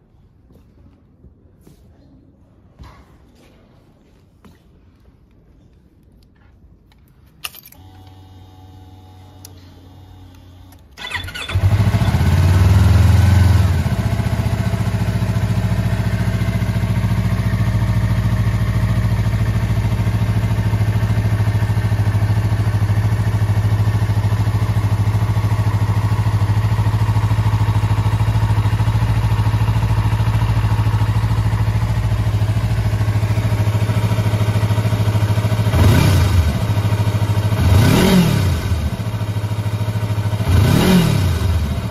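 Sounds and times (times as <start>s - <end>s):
ignition key click: 7.4s - 8.3s
motorcycle engine idling: 11.0s - 41.9s.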